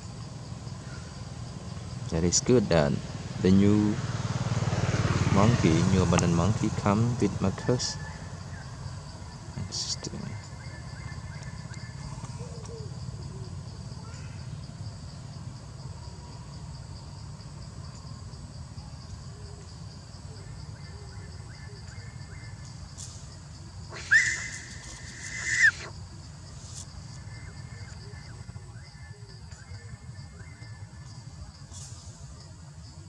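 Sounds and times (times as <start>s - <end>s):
young monkey screaming: 23.9s - 25.9s.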